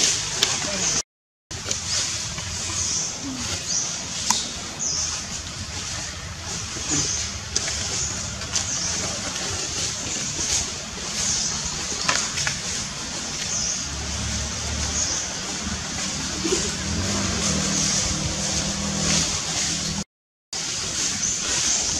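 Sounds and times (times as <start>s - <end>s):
motor vehicle drone: 12.4s - 20.0s.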